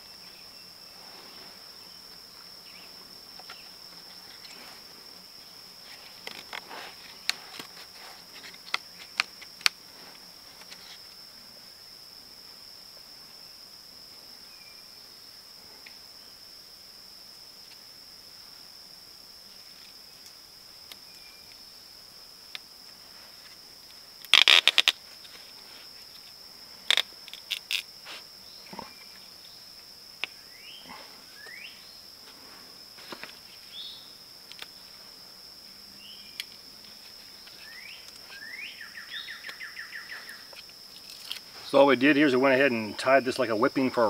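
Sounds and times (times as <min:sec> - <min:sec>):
insects droning: 0:00.0 - 0:44.0
rising bird chirps: 0:30.4 - 0:32.0, 0:37.5 - 0:40.5.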